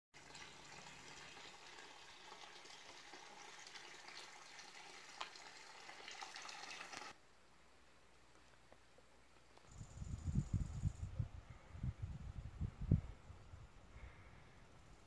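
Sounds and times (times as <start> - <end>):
water pouring into stone trough: 0.2 - 7.2.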